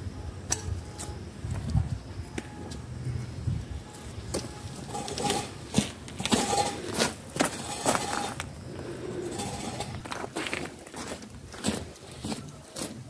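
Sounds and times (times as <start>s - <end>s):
bark scraping and cracking: 4.3s - 13.0s.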